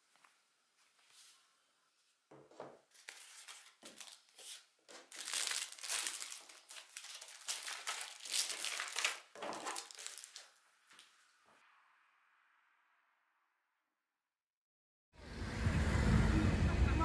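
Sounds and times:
plastic packaging crinkling: 0:02.9 - 0:11.1.

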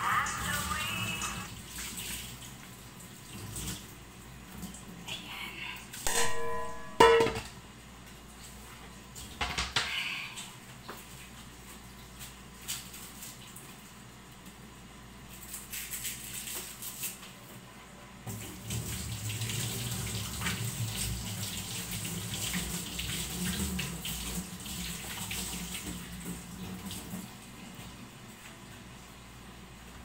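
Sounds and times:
tap water running into sink: 0:18.3 - 0:27.3.

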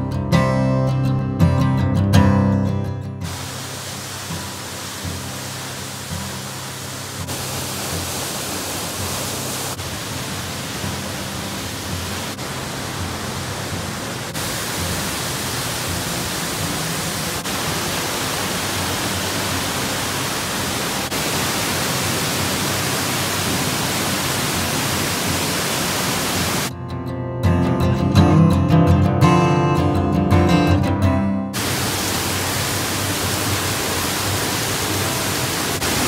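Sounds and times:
waterfall rushing into rock pools: 0:03.2 - 0:26.7, 0:31.6 - 0:36.0.

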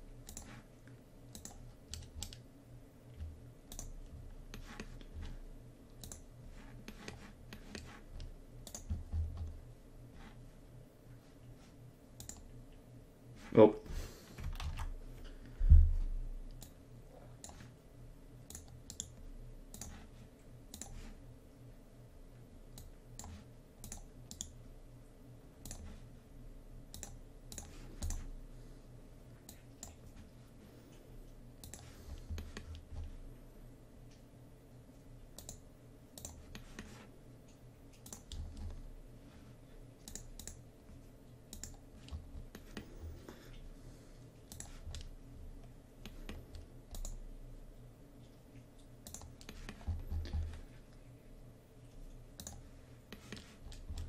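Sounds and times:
steady low hum: 0:00.0 - 0:54.0
mouse and keyboard clicks: 0:00.2 - 0:02.4, 0:03.2 - 0:05.3, 0:06.0 - 0:09.6, 0:12.2 - 0:12.5, 0:17.4 - 0:17.8, 0:18.5 - 0:20.1, 0:22.7 - 0:24.6, 0:25.6 - 0:26.0, 0:26.9 - 0:28.3, 0:31.6 - 0:33.1, 0:35.4 - 0:35.6, 0:36.2 - 0:38.8, 0:40.0 - 0:40.6, 0:44.4 - 0:45.1, 0:46.0 - 0:47.2, 0:48.8 - 0:50.6, 0:52.3 - 0:54.0.

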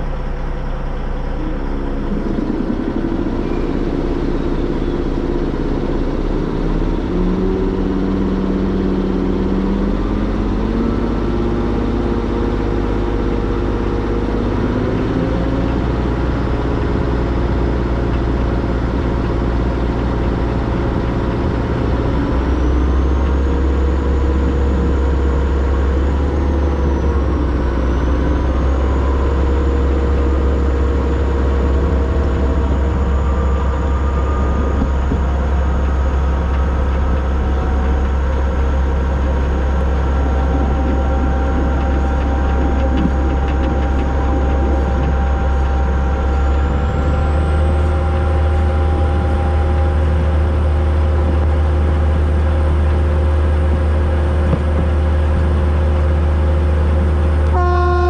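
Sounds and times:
faint steady whines: 0:00.0 - 0:58.0
steam train rumbling: 0:00.0 - 0:58.0.

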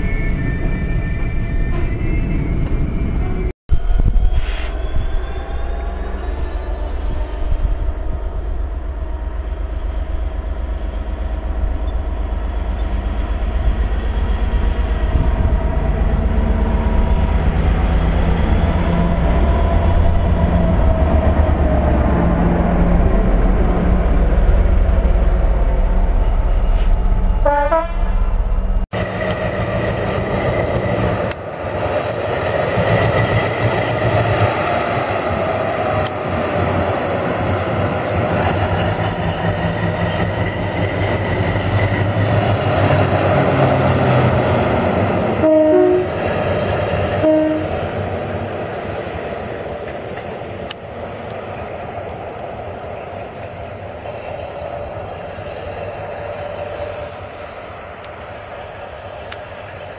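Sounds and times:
diesel locomotive engine passing: 0:00.0 - 0:59.9
two-tone train horn: 0:27.4 - 0:28.1, 0:45.4 - 0:46.2, 0:47.2 - 0:47.8.

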